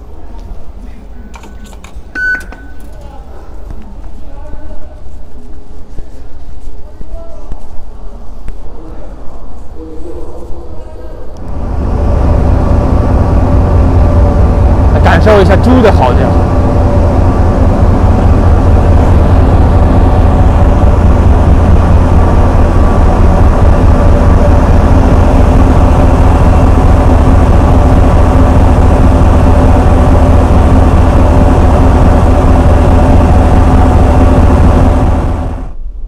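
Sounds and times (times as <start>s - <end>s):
diesel train engine howling: 8.8s - 36.0s.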